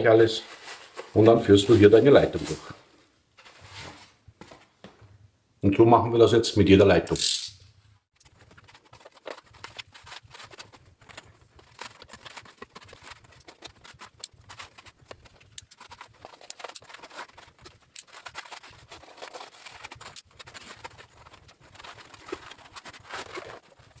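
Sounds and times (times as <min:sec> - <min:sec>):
cables rubbing through plastic box: 0:08.2 - 0:24.0.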